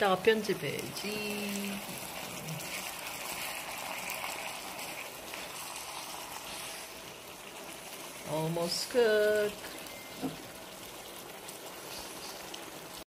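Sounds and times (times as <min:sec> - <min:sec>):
meat sizzling in a frying pan: 0:00.0 - 0:13.0
chopsticks stirring: 0:01.0 - 0:07.0.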